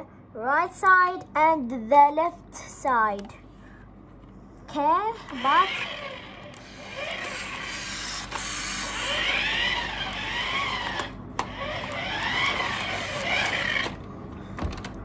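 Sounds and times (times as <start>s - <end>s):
toy car electric motor whining: 5.2s - 14.0s.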